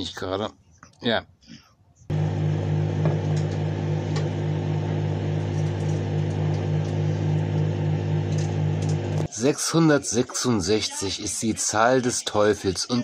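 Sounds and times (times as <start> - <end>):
microwave oven humming: 2.1 - 9.3.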